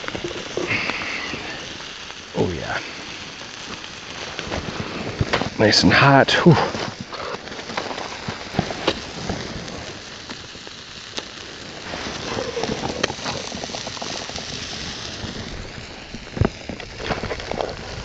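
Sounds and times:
food sizzling in butter: 0.0 - 18.0.

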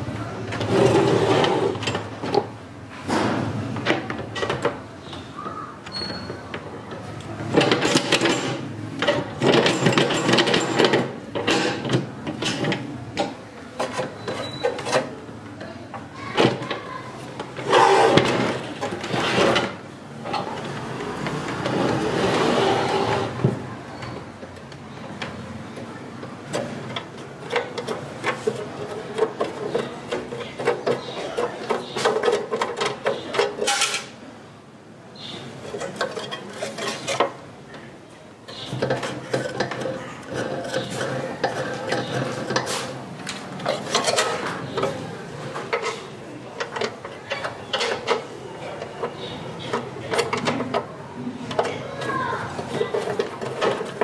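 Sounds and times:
clicks and rattles of saw parts: 7.4 - 15.1, 24.4 - 34.2, 38.5 - 54.0.

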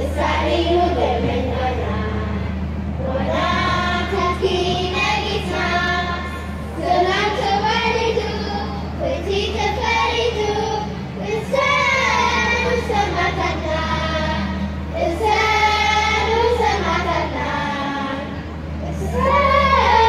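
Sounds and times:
children singing over loudspeakers: 0.0 - 20.0
steady low hum: 0.0 - 20.0.

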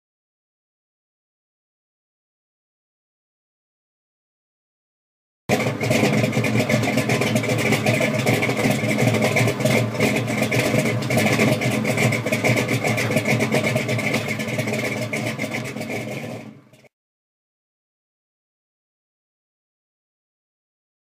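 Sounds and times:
car engine running roughly: 5.5 - 16.9.

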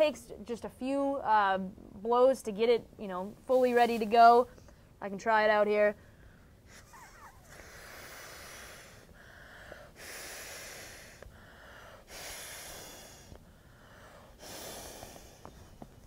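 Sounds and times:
person blowing into inflatable pillow: 7.4 - 9.1, 12.1 - 13.4, 14.4 - 16.0.

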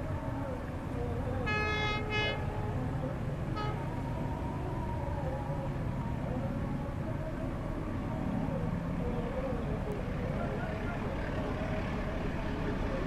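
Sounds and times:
locomotive horn blasts: 1.5 - 2.4.

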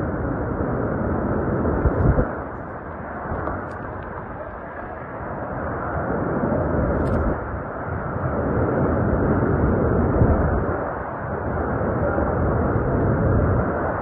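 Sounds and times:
strong wind on microphone: 0.0 - 14.0.

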